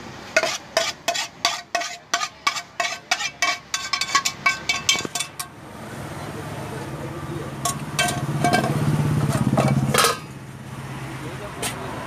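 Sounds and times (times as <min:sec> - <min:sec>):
metal spatula scraping metal pan: 0:00.3 - 0:05.5, 0:07.6 - 0:10.4.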